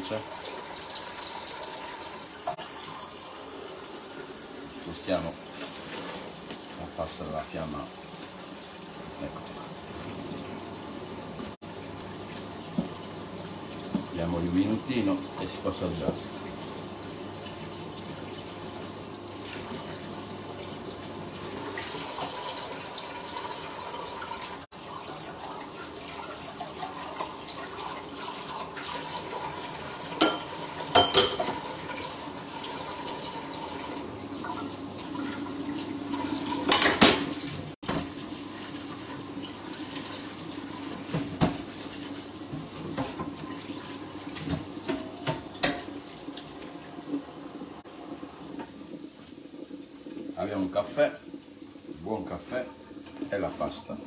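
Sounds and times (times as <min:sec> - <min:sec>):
water running in a sink: 0:00.0 - 0:54.0
dishes clattering: 0:30.2 - 0:31.7, 0:36.6 - 0:37.3, 0:44.4 - 0:46.0.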